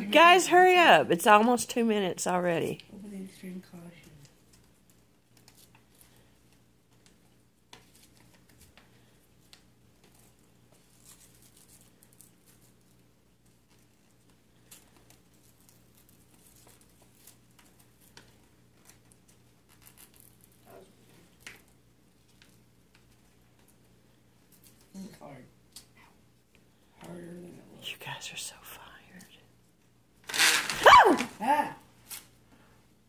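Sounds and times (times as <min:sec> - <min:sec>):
low room hum: 0:00.0 - 0:33.0
paper rustling and crinkling: 0:04.4 - 0:20.6.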